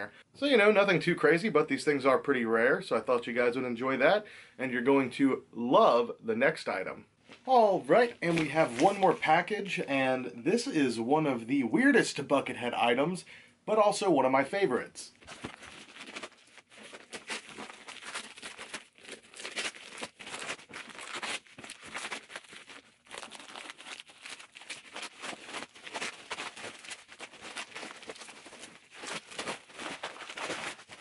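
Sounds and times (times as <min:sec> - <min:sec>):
paper envelope tearing and crinkling: 0:08.0 - 0:09.2, 0:15.2 - 0:31.0.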